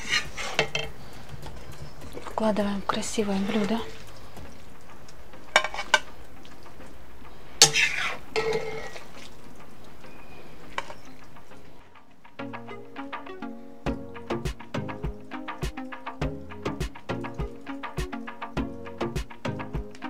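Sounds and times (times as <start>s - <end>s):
metal spoon scraping and clinking: 5.5s - 6.1s, 7.6s - 9.0s.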